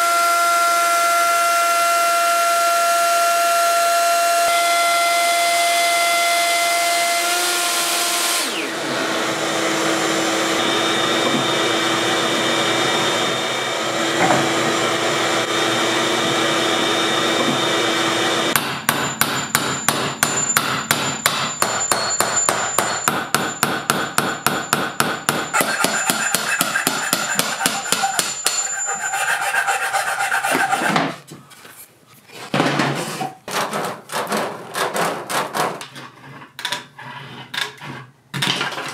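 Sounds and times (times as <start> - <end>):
woodworking machine running: 0.1 - 18.6, 25.5 - 29.1
mallet blows on a chisel: 18.6 - 29.3.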